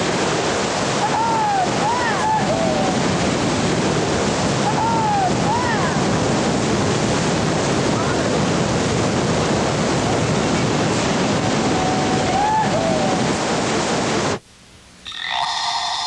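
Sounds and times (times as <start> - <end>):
rushing whitewater rapid: 0.0 - 14.4.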